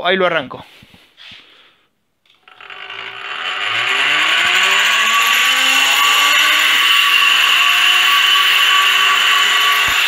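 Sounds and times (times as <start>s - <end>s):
electric motor whine and gear noise: 2.3s - 10.0s.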